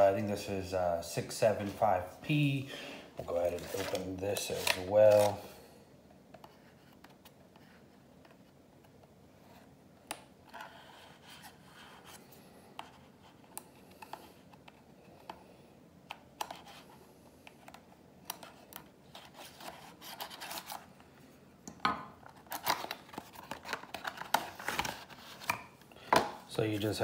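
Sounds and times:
cardboard rustling and tearing: 3.3 - 5.4, 22.4 - 25.6.

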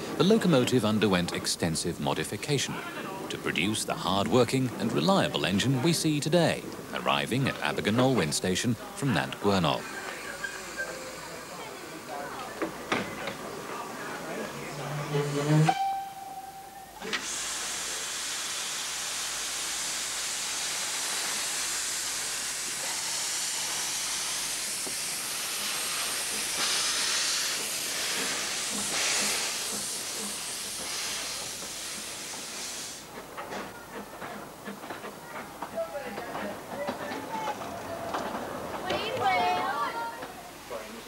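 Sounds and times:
steam locomotive hissing steam: 8.8 - 16.3, 17.0 - 36.6
brief high tone: 14.8 - 17.1.

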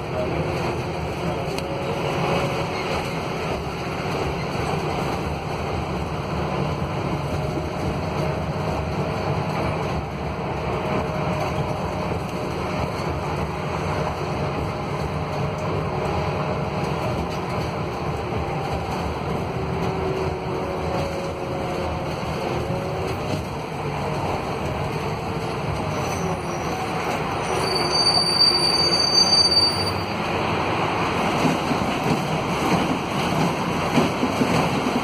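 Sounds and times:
bus diesel engine running: 0.0 - 27.5
road and wind noise: 0.0 - 35.0.

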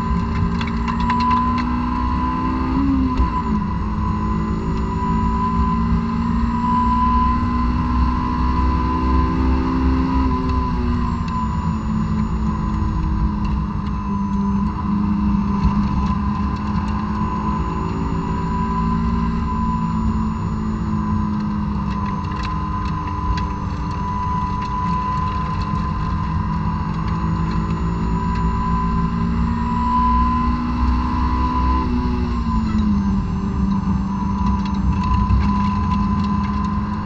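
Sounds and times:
car engine at high revs: 0.0 - 37.0
tyre and road noise: 0.0 - 37.0.

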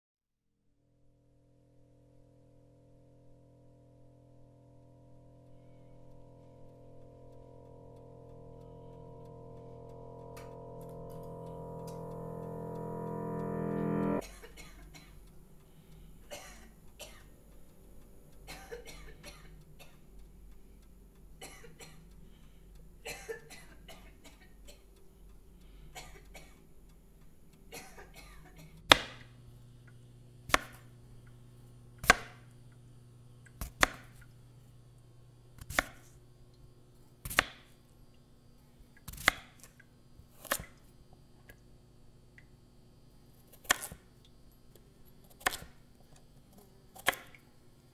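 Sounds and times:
low steady hum: 1.5 - 39.0
knife chopping on wooden board: 30.5 - 30.8, 32.0 - 32.4.

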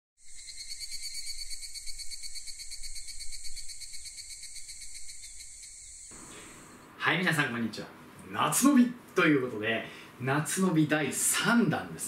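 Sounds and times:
insects chirring: 0.2 - 6.9.

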